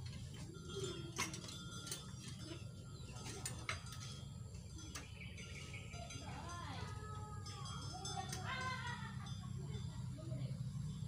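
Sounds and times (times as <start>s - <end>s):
metal hardware clicks and knocks: 0.0s - 7.0s.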